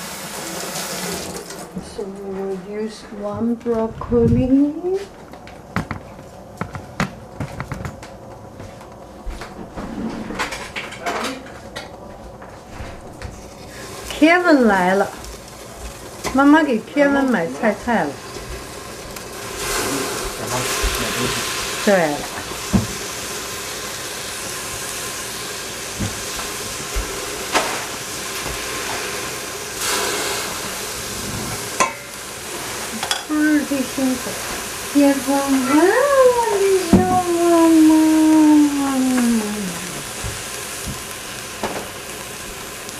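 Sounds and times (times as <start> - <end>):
steady hiss: 12.6 - 42.9.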